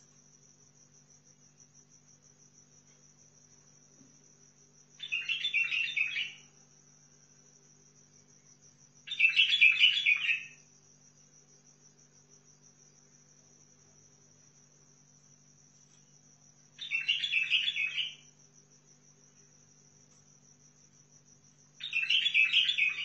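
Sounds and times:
bird warbling song: 5.0s - 6.5s, 9.1s - 10.6s, 16.8s - 18.3s, 21.8s - 23.0s.

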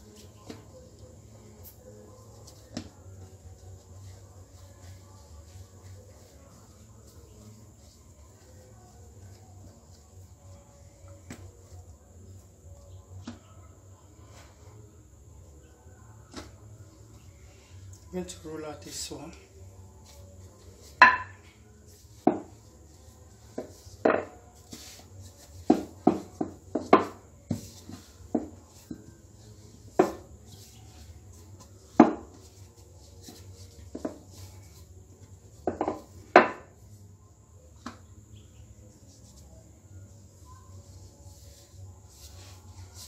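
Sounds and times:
rolling pin knocking on countertop: 32.0s - 32.3s.

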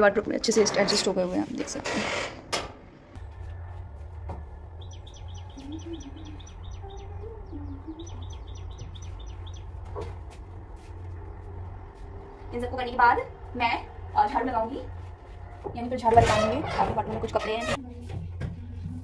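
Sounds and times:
steady low hum: 2.7s - 19.0s
bird chirping rapidly: 4.7s - 10.0s.

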